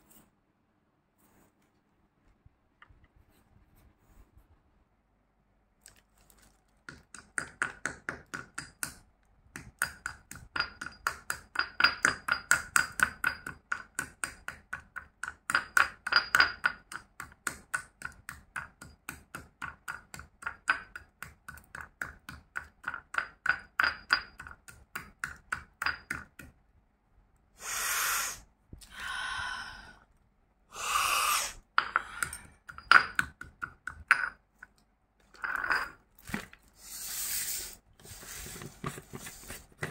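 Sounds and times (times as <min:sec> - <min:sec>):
stone pestle pounding in mortar: 0:06.9 - 0:26.6, 0:31.8 - 0:34.4.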